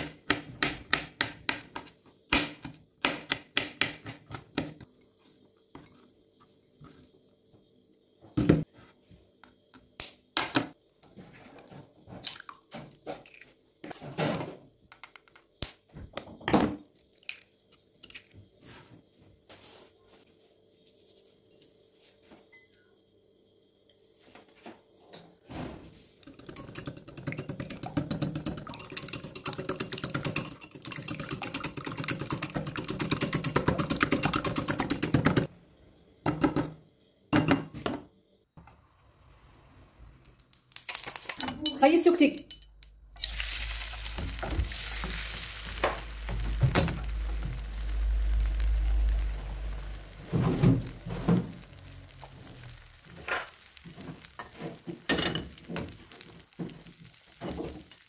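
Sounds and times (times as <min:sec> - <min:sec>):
whisk beating eggs in bowl: 0:26.2 - 0:35.5
eggs cracked into bowl: 0:40.3 - 0:43.3.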